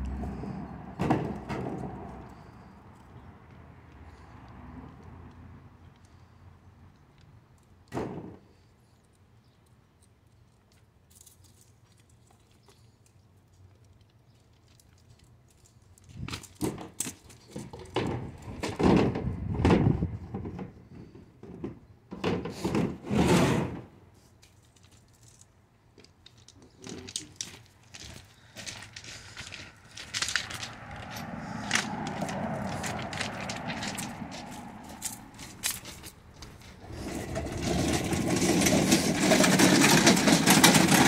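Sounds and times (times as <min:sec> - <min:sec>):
boots crunching on gravel: 0:27.6 - 0:38.6.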